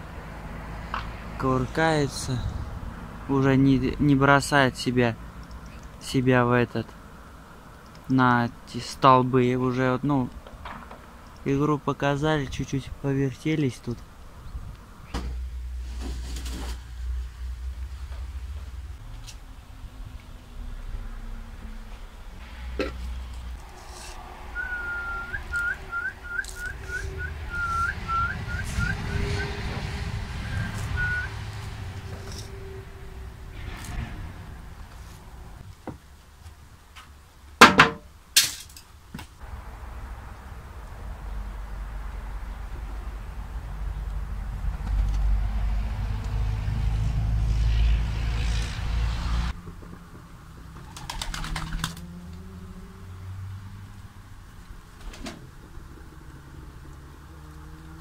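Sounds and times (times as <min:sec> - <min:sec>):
pigeons cooing: 0:23.8 - 0:31.5, 0:49.9 - 0:53.1, 0:54.7 - 0:58.0
person whistling: 0:24.6 - 0:29.5, 0:30.4 - 0:31.3
pigeon wings flapping: 0:49.6 - 0:52.1.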